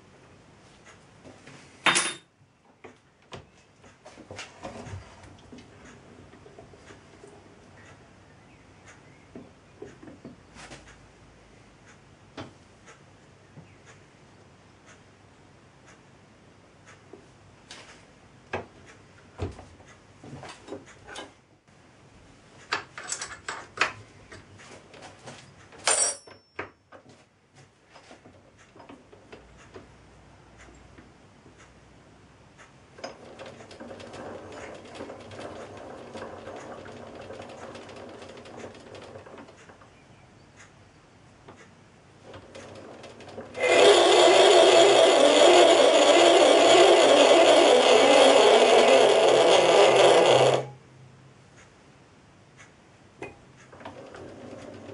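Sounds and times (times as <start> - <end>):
lathe controls clicking and knocking: 32.6 - 40.0, 41.4 - 50.7, 53.2 - 54.9
geared whirr of hand-turned lathe: 33.0 - 39.8, 42.3 - 50.7, 53.7 - 54.9
loud machine running: 43.4 - 50.7.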